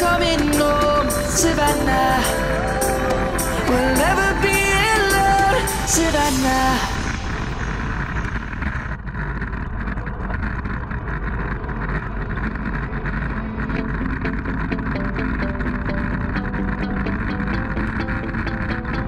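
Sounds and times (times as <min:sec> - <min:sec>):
background music: 0:00.0 - 0:08.0
wind rushing over microphone: 0:00.0 - 0:18.7
bicycle tyre and drivetrain noise: 0:00.0 - 0:19.0.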